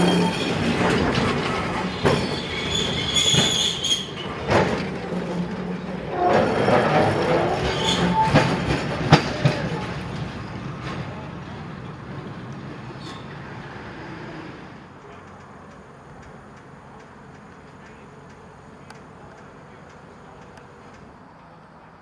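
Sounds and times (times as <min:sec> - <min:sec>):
wheels squealing on curves: 0:00.0 - 0:04.8, 0:06.0 - 0:09.8
tram wheels clacking over rail joints: 0:00.0 - 0:22.0.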